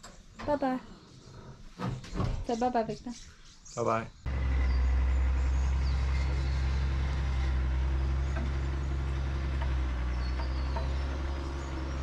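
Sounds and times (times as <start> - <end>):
vehicle engine humming: 4.3 - 12.0.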